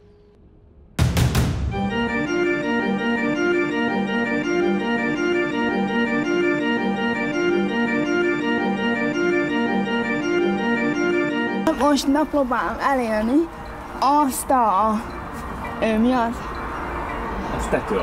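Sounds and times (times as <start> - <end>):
sudden loud hit: 0.6 - 2.2
electronic music with organ-like keyboard: 1.6 - 18.0.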